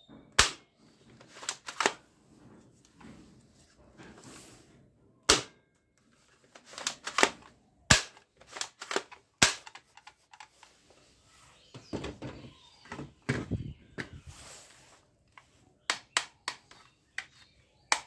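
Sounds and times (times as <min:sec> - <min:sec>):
plastic rattling: 0:01.1 - 0:02.0, 0:06.3 - 0:10.8
plastic toy gun clicks: 0:01.3 - 0:02.0, 0:06.6 - 0:10.5, 0:15.9 - 0:17.3.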